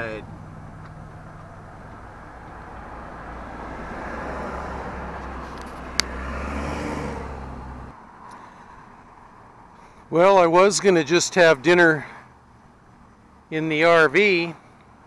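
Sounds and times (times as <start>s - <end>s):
low engine hum: 0.0s - 8.2s
traffic passing: 0.0s - 15.0s.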